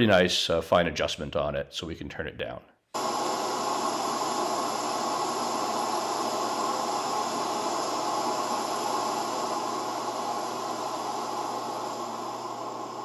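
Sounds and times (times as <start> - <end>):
torch flame hissing: 3.0 - 13.0.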